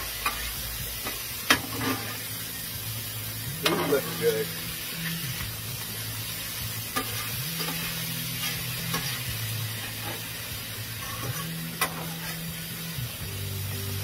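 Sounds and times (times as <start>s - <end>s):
spatula clacking on griddle: 0.0s - 2.2s, 3.6s - 4.0s, 6.9s - 10.3s, 11.0s - 12.4s
steak sizzling on griddle: 0.0s - 14.0s.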